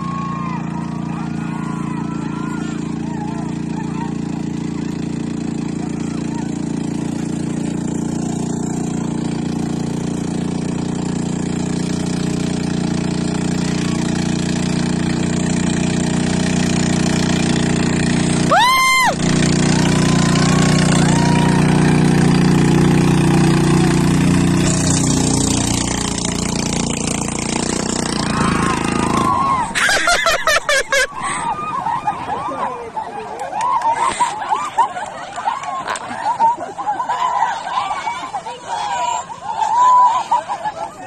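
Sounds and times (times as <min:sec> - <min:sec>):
shrill cry: 0:00.0 - 0:04.1, 0:18.5 - 0:19.2, 0:37.0 - 0:40.6
distant shouts: 0:00.0 - 0:29.9, 0:31.0 - 0:41.0
boat engine running: 0:00.0 - 0:41.0.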